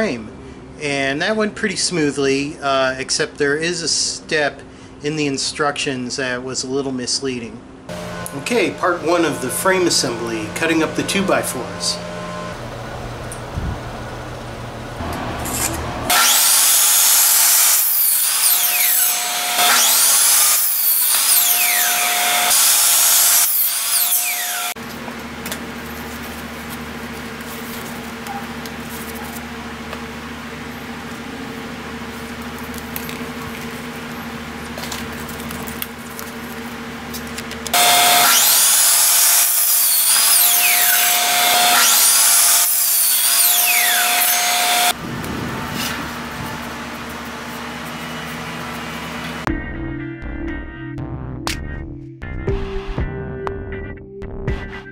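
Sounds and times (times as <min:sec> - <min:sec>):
miter saw blade whine: 0:07.9 - 0:26.1, 0:37.7 - 0:49.5.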